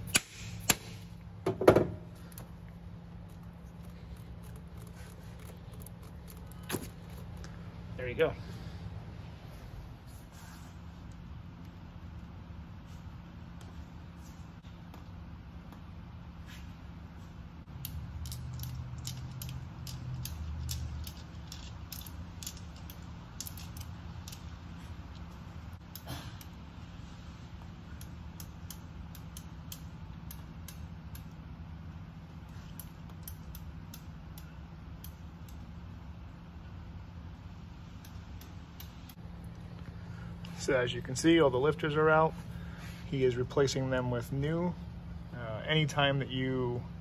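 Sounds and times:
low steady hum: 0:00.0 - 0:47.0
metal parts clicking: 0:03.2 - 0:07.5, 0:17.7 - 0:26.5, 0:32.4 - 0:35.6.

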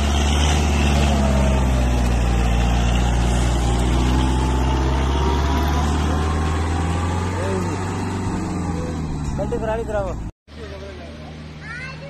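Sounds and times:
tractor diesel engine under load: 0:00.0 - 0:12.0.

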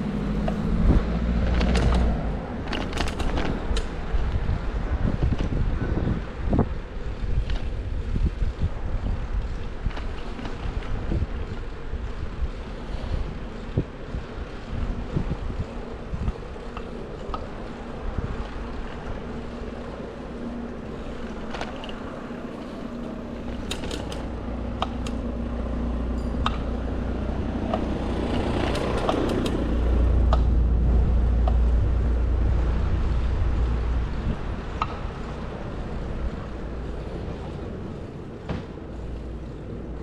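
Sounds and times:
vehicle passing: 0:00.0 - 0:05.1, 0:15.9 - 0:40.0
traffic rumble: 0:00.0 - 0:40.0.

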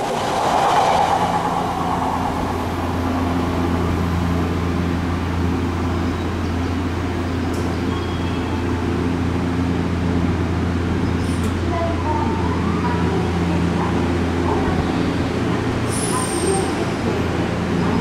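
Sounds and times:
train equipment low hum: 0:00.0 - 0:15.8
train wheels rushing on rail: 0:00.0 - 0:18.0.

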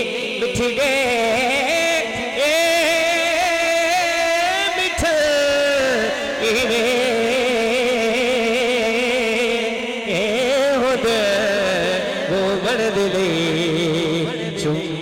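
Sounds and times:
man singing through microphone: 0:00.0 - 0:15.0.

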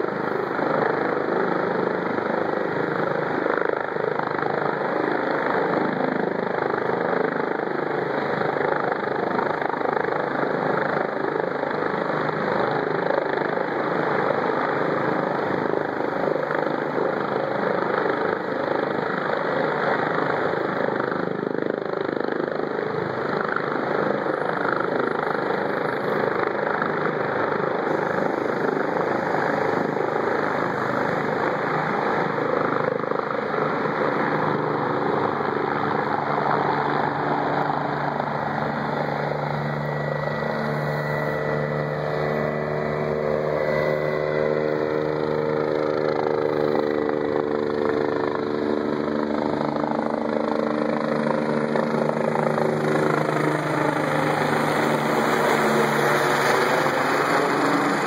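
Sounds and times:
helicopter rotor and turbine: 0:00.0 - 0:58.0
humming drone shifting pitch: 0:37.2 - 0:49.1, 0:51.4 - 0:58.0.

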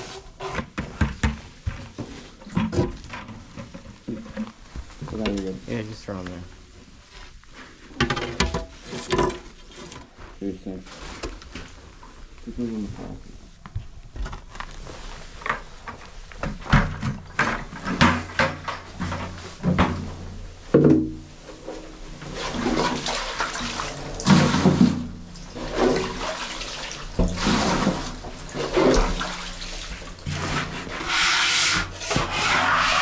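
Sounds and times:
scraper scooping wet sludge: 0:22.2 - 0:33.0.

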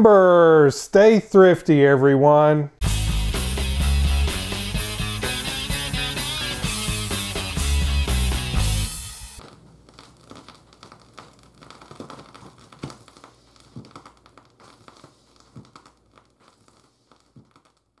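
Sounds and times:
vinyl crackle and pops: 0:03.8 - 0:18.0.

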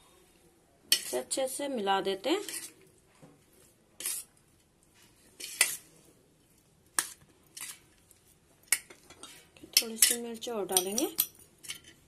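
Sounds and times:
metal spoon scraping steel bowl: 0:00.9 - 0:01.3, 0:02.4 - 0:02.8, 0:04.0 - 0:04.3, 0:05.4 - 0:05.9, 0:09.1 - 0:12.0.

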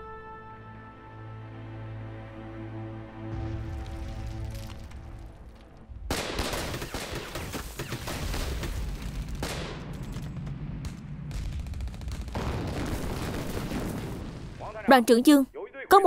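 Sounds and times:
music: 0:00.0 - 0:07.5
machine-gun burst: 0:06.1 - 0:10.4
heavy gunfire: 0:06.1 - 0:14.8.

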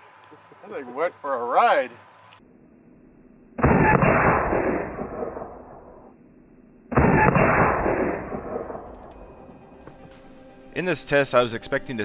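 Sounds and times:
loud gunshot bangs: 0:03.6 - 0:05.8, 0:06.9 - 0:08.9.

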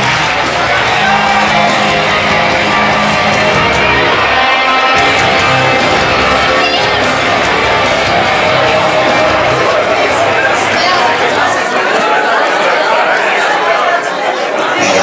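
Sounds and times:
loud rock entrance music: 0:00.0 - 0:11.6.

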